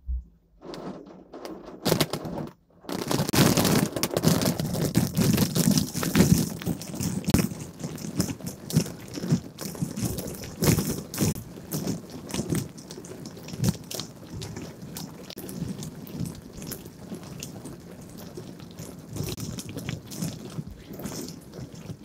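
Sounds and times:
water spattering on a car: 3.1s - 22.0s.

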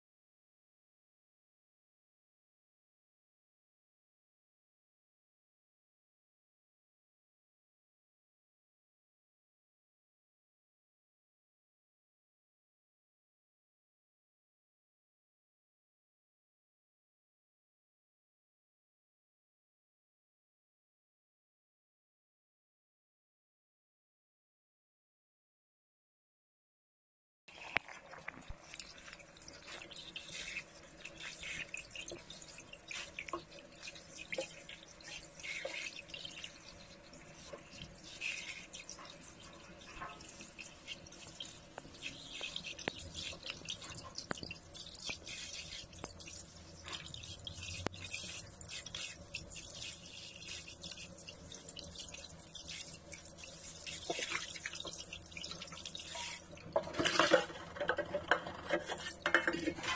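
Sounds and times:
water dripping and splashing in sink: 27.5s - 59.9s.

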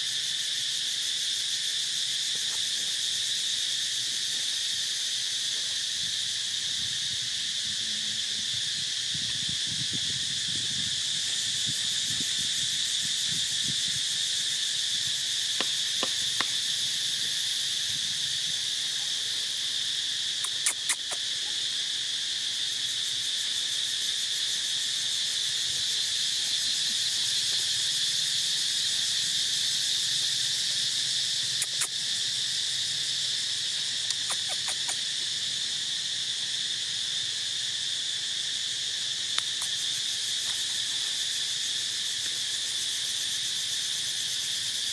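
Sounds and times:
insect chorus drone: 0.0s - 44.9s.

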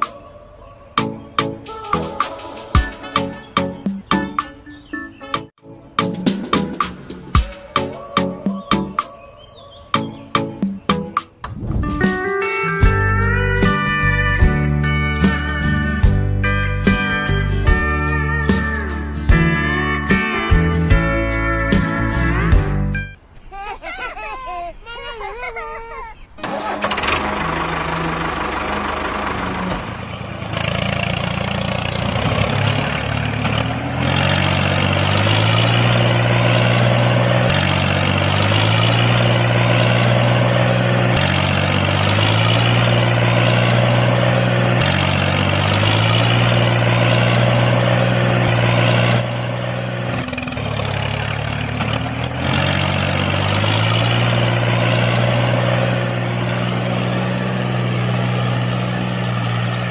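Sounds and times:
music: 0.0s - 23.2s
tractor engine drone: 5.8s - 23.4s, 24.7s - 59.9s.

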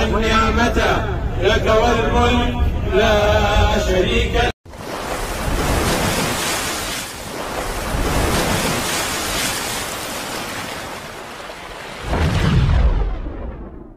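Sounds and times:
rushing splashing water: 4.7s - 13.5s
deep boom: 12.0s - 13.9s.

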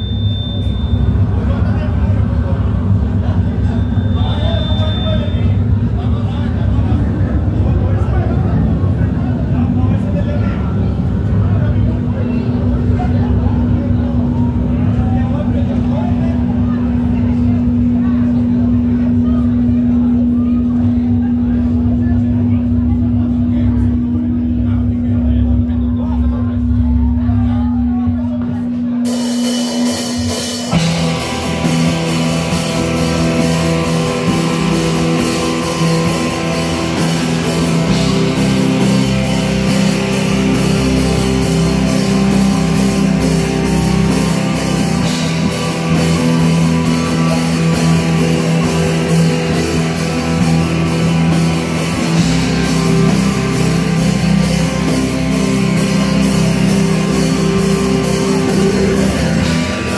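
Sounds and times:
distorted electric guitars: 0.0s - 27.4s, 28.1s - 59.9s
keyboard: 0.0s - 59.9s
drum kit: 28.4s - 59.9s.

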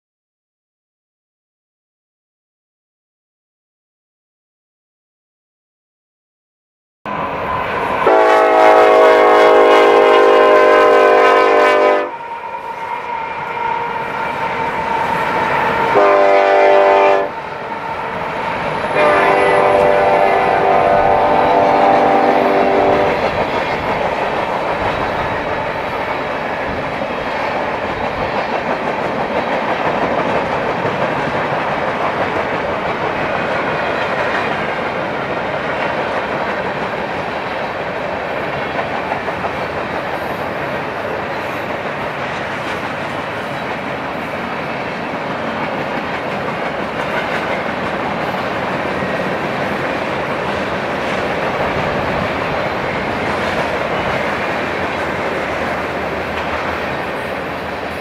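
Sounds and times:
locomotive air horn blasts: 8.0s - 14.4s, 15.8s - 17.4s, 18.9s - 23.2s
freight cars rolling on rails: 12.0s - 58.0s.

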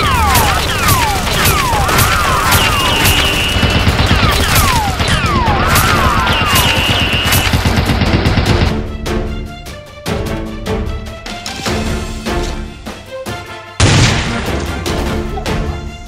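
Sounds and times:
electronic track with whistling zaps: 0.0s - 7.6s
gunshots: 0.0s - 8.9s, 13.8s - 14.8s.

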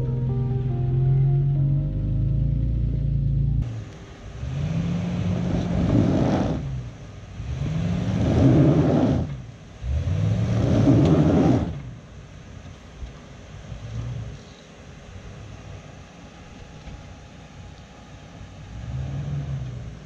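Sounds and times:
engine revving: 0.0s - 12.0s, 18.3s - 20.0s.

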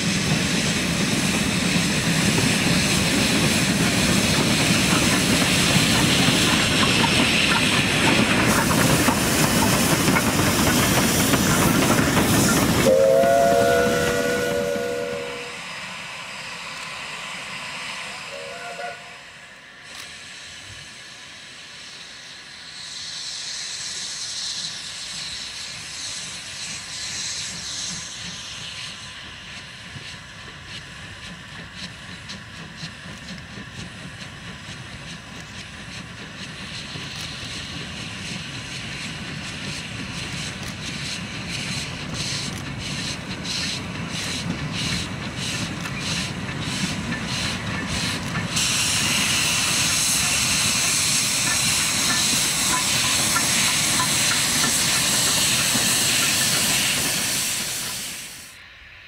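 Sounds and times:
steam hissing: 0.0s - 59.0s
steam locomotive chuffing: 0.0s - 59.0s.

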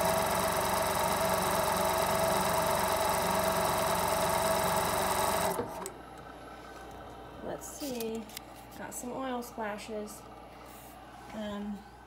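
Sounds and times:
sewing machine running: 0.0s - 5.9s.

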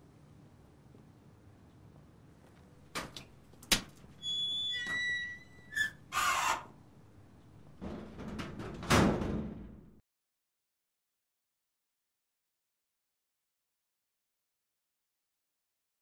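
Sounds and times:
door hinges squealing: 3.8s - 6.8s
steel door scraping: 3.9s - 6.8s, 7.6s - 9.9s.

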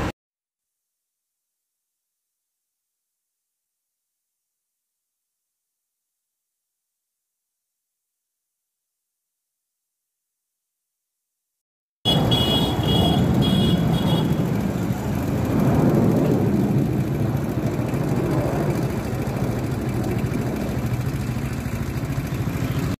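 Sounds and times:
low rumbling noise: 12.1s - 23.0s.

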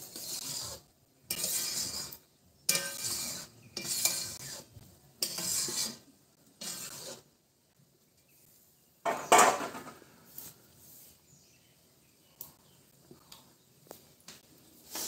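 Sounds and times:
utensil scraping steel pan: 0.0s - 7.3s.

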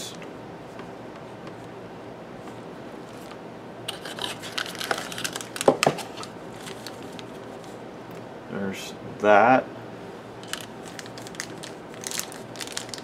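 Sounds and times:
plastic bags crinkling: 3.9s - 7.7s, 10.4s - 13.0s.

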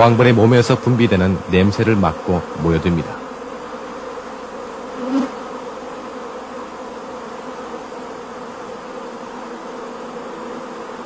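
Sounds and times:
honeybees buzzing: 0.0s - 11.0s.

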